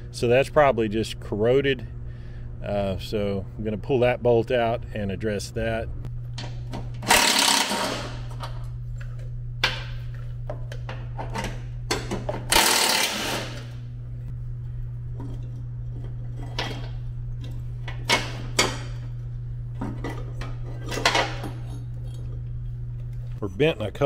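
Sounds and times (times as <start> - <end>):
steady low hum: 0.0 - 24.0
power driver running: 6.1 - 23.4.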